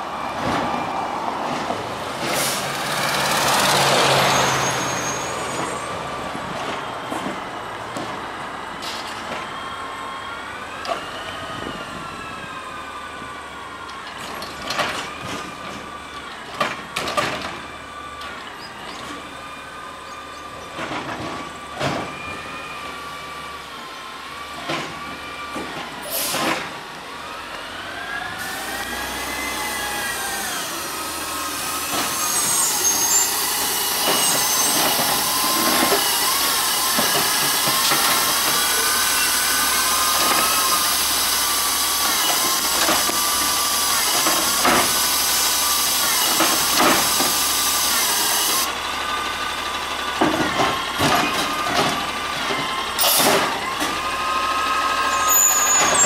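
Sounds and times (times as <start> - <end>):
garbage truck hydraulic whine: 13.3 - 56.0.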